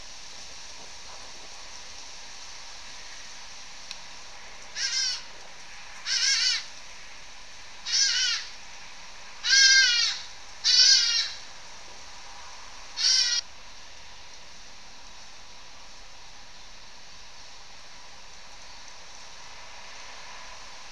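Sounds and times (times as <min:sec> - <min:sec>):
steady background hiss: 0:00.0 - 0:20.9
animal bleating call: 0:04.8 - 0:05.2, 0:06.1 - 0:06.7, 0:07.9 - 0:08.5, 0:09.4 - 0:11.4, 0:13.0 - 0:13.4.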